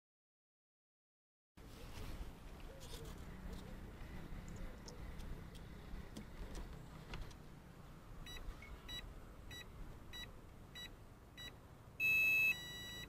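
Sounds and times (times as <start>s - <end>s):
long high beep: 8.3s - 13.0s
short electronic beeps: 8.3s - 13.0s.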